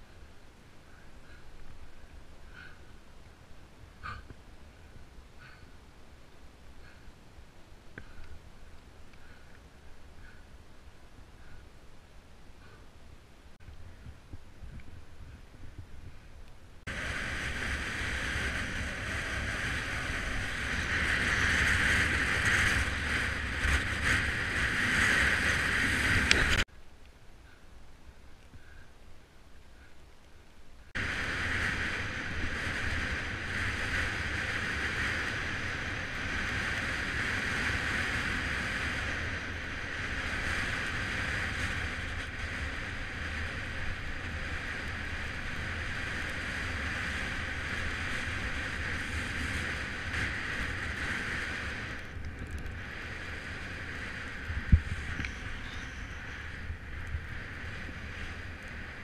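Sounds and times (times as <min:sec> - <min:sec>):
bike tyre rumble on asphalt: 0:00.0 - 0:59.0
wind rushing over microphone: 0:13.6 - 0:26.7, 0:31.0 - 0:59.0.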